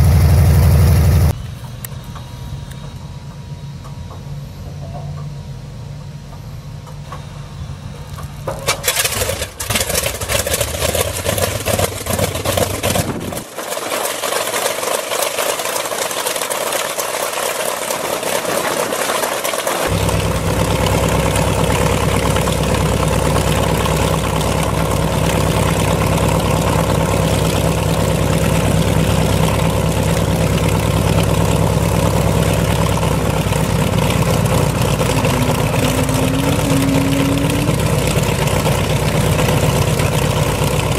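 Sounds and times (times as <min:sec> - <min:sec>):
radial aircraft engine starting and idling: 0:00.0 - 0:13.6, 0:14.4 - 0:40.9.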